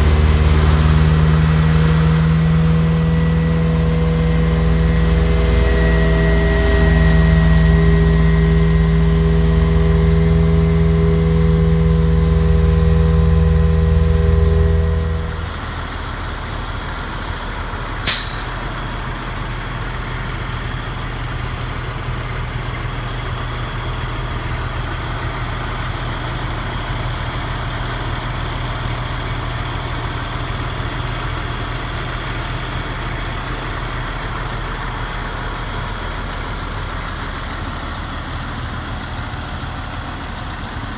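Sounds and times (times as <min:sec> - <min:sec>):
vacuum truck blower drone: 0:00.0 - 0:18.6.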